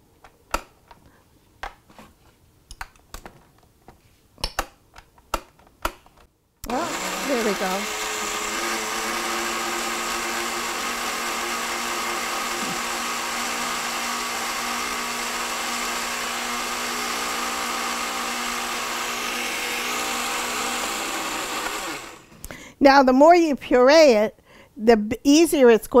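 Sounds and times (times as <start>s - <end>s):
blender motor running: 6.7s - 22.3s.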